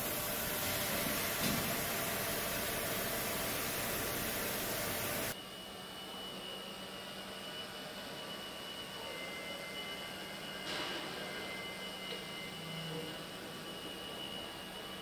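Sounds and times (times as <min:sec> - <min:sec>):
machinery hissing: 0:00.0 - 0:05.4
factory hall hum: 0:00.0 - 0:15.0.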